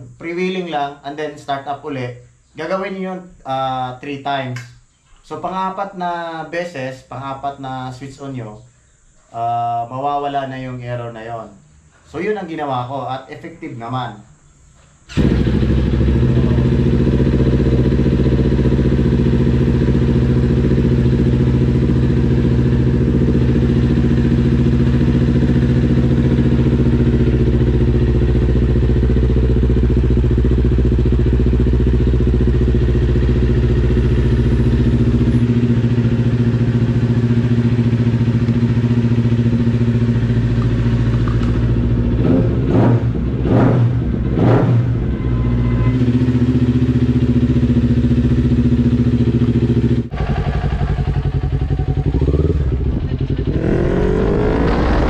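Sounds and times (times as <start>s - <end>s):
motorcycle engine idling and revving: 15.1s - 55.0s.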